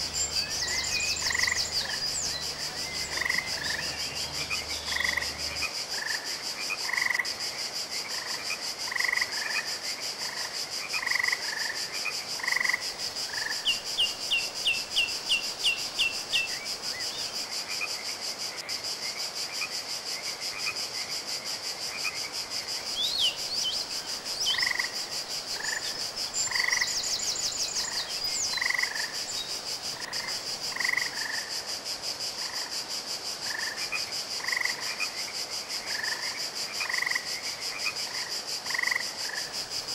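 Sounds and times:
steady high-pitched hum: 0:00.0 - 0:05.7
frogs croaking: 0:00.0 - 0:39.9.

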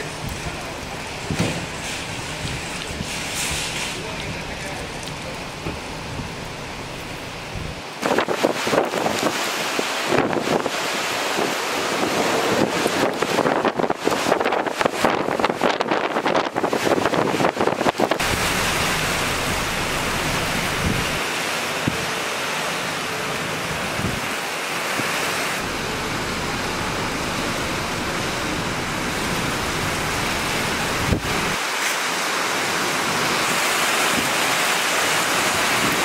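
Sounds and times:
driving rain: 0:00.0 - 0:36.0
wind buffeting microphone: 0:00.1 - 0:21.2, 0:23.9 - 0:24.4, 0:25.6 - 0:31.6.

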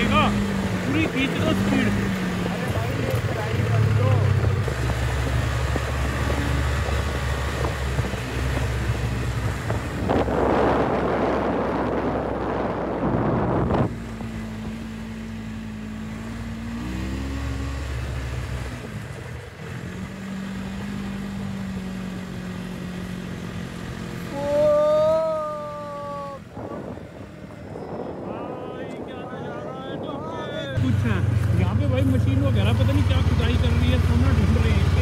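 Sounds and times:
snowmobile engine running: 0:00.0 - 0:35.0
wind buffeting microphone: 0:01.9 - 0:15.0, 0:25.9 - 0:31.7.

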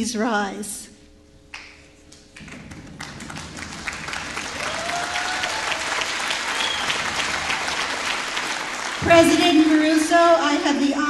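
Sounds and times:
audience applauding: 0:02.2 - 0:10.1.

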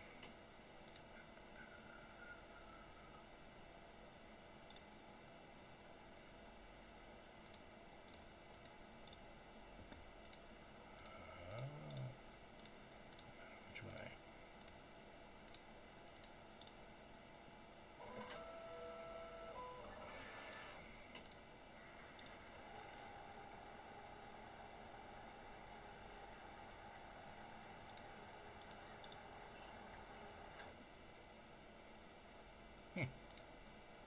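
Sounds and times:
computer mouse clicks: 0:00.2 - 0:01.3, 0:04.6 - 0:05.0, 0:07.4 - 0:14.0, 0:14.6 - 0:14.8, 0:15.4 - 0:16.8, 0:20.4 - 0:23.0, 0:27.6 - 0:29.3, 0:33.2 - 0:33.6.

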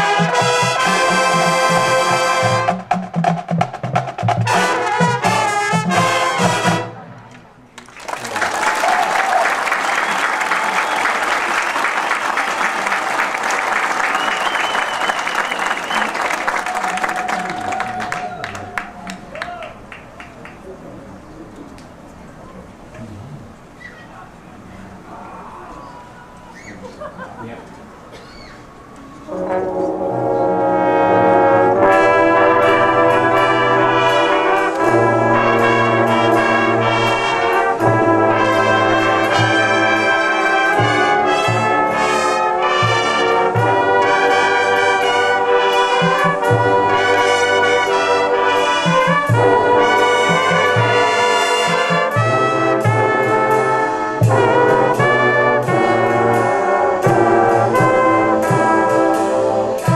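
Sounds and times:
low brass holding long notes: 0:00.0 - 0:02.9, 0:04.4 - 0:07.2, 0:29.2 - 0:59.9
brass horn line playing chords: 0:00.0 - 0:07.2, 0:29.3 - 0:59.9.

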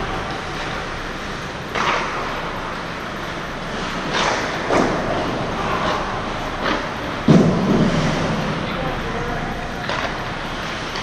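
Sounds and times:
steady rush of noise: 0:00.0 - 0:11.0
skate blades scraping ice: 0:03.6 - 0:07.2.

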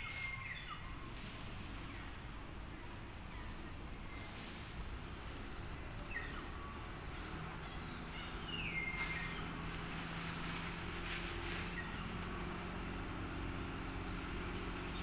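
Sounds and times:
bird whistled calls: 0:00.0 - 0:01.2, 0:08.1 - 0:09.5.

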